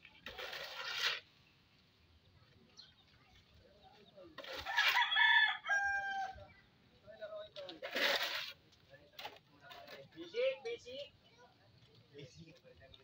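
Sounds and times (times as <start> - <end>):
shovel scraping concrete: 0.0 - 1.5, 4.4 - 5.1, 7.6 - 10.2
rooster crowing: 4.6 - 6.4.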